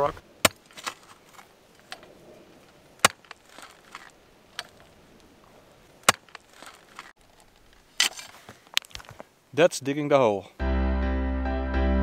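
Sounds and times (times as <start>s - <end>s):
post hole digger striking soil: 0.4s - 2.0s, 3.0s - 4.8s, 6.0s - 7.1s
scrape of earth and grit: 3.3s - 4.2s, 6.3s - 7.2s.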